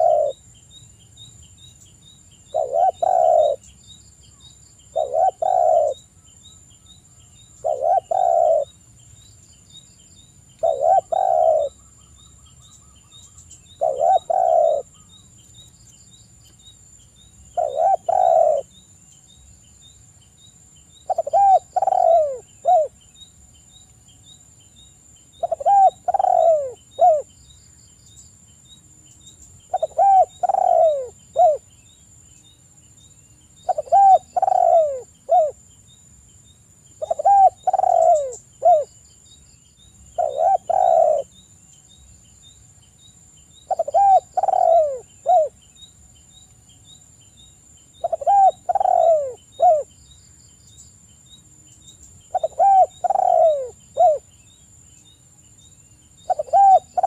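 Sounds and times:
dove cooing: 0:00.0 - 0:00.4, 0:02.5 - 0:03.7, 0:04.9 - 0:06.0, 0:07.6 - 0:08.7, 0:10.6 - 0:11.8, 0:13.8 - 0:15.1, 0:17.6 - 0:18.7, 0:21.1 - 0:23.0, 0:25.4 - 0:27.3, 0:29.7 - 0:31.7, 0:33.7 - 0:35.6, 0:37.0 - 0:38.9, 0:40.2 - 0:41.3, 0:43.7 - 0:45.6, 0:48.0 - 0:49.9, 0:52.3 - 0:54.2, 0:56.2 - 0:57.0.

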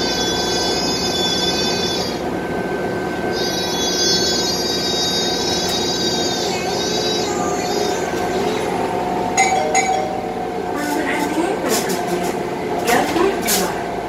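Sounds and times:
high-pitched whine: 0:00.0 - 0:02.7, 0:03.3 - 0:11.3
bus running hum: 0:00.0 - 0:14.0.

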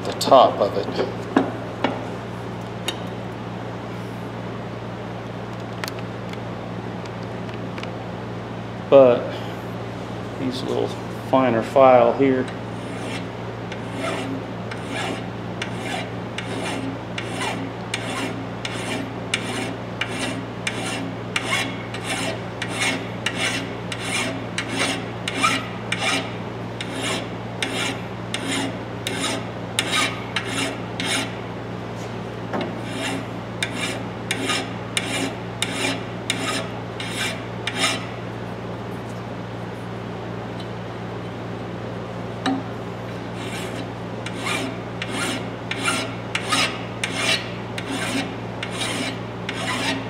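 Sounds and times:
hand file rasping on steel: 0:12.8 - 0:31.3, 0:32.8 - 0:38.1, 0:43.4 - 0:50.0.

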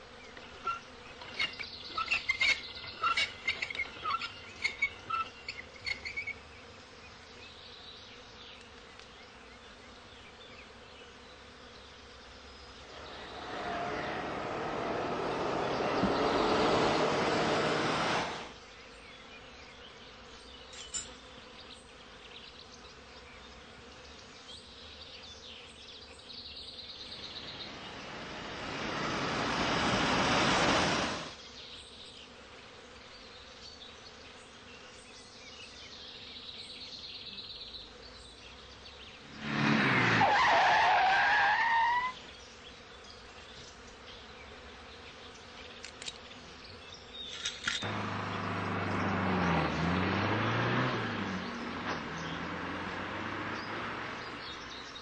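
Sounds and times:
faint insect buzzing: 0:00.0 - 0:39.8, 0:41.9 - 0:48.0
tyre squeal: 0:00.6 - 0:06.3, 0:39.9 - 0:42.2
vehicles passing: 0:12.8 - 0:18.6, 0:27.0 - 0:31.4, 0:39.2 - 0:40.5, 0:47.4 - 0:55.0.

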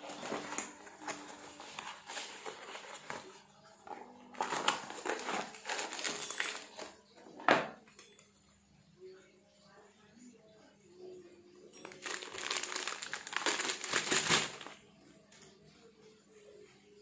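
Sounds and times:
cardboard and plastic rustling: 0:00.0 - 0:07.0, 0:11.8 - 0:14.8.

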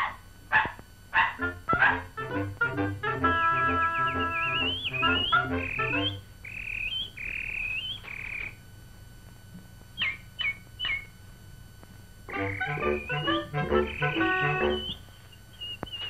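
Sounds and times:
band music: 0:01.4 - 0:06.2, 0:12.3 - 0:15.0
cartoon canary warbles: 0:03.6 - 0:07.0, 0:12.3 - 0:15.0.

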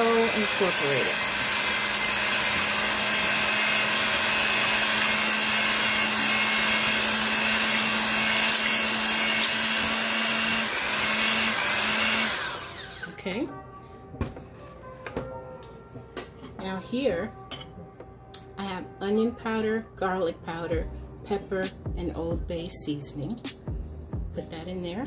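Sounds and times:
electric hand mixer whisking: 0:00.0 - 0:13.2.

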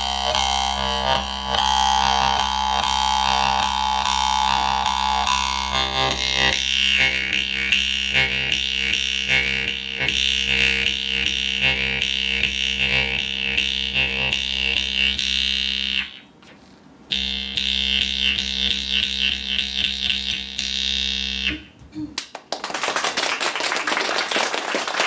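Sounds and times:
jaw harp drone: 0:00.0 - 0:16.3.

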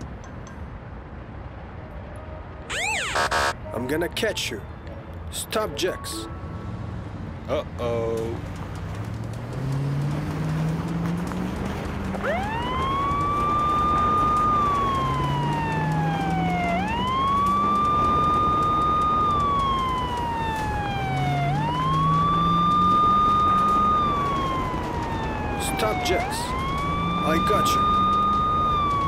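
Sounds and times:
low tone rising in steps: 0:02.5 - 0:03.8, 0:08.9 - 0:29.0
police car siren wailing: 0:02.7 - 0:03.6, 0:12.0 - 0:29.0.

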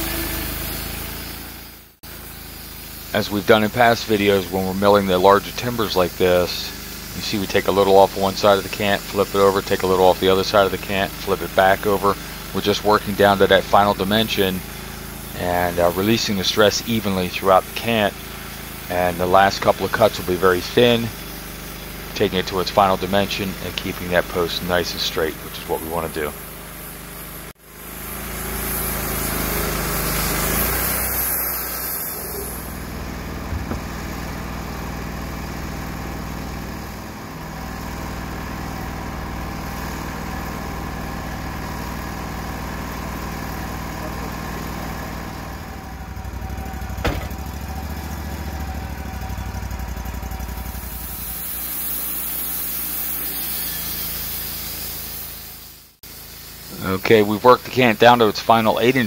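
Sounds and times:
saw cutting wood with a hiss: 0:00.0 - 0:59.0
sawmill engine running: 0:00.0 - 0:59.0
sharp knock: 0:33.5 - 0:34.0, 0:47.0 - 0:47.4.

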